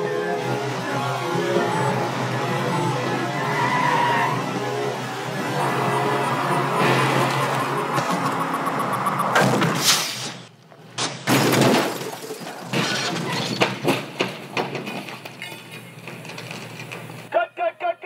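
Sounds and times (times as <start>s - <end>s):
car crash with glass shattering: 11.0s - 14.0s
debris clinking and clattering: 11.3s - 17.0s.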